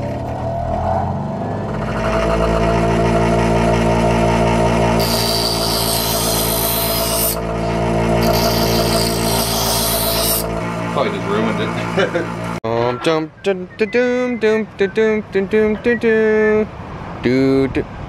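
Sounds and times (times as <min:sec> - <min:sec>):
bench grinder motor humming: 0:01.4 - 0:12.6
metal grinding hiss: 0:05.0 - 0:07.4, 0:08.2 - 0:10.5.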